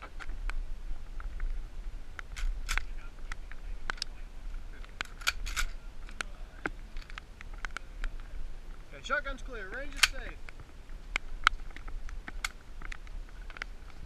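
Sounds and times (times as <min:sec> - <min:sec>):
faint low rumble: 0:00.0 - 0:14.0
shotgun metallic clicks: 0:02.2 - 0:02.9, 0:04.8 - 0:06.3, 0:09.7 - 0:13.7.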